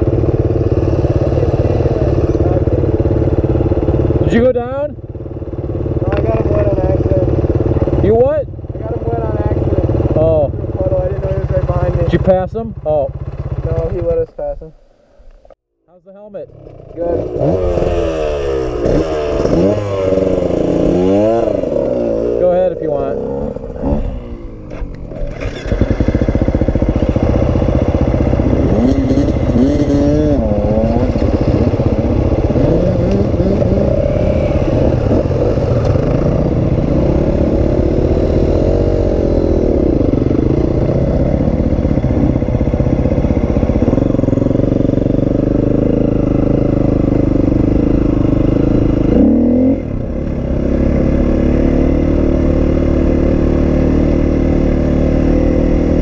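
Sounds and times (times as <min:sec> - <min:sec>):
dirt bike engine running hard: 0:00.0 - 0:14.2, 0:16.5 - 0:56.0.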